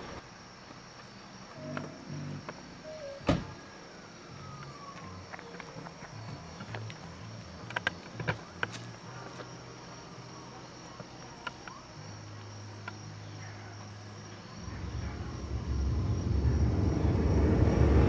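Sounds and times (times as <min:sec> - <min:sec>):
crickets chirring: 0:00.0 - 0:18.0
low ominous drone: 0:01.5 - 0:18.0
soft footsteps: 0:04.6 - 0:13.0.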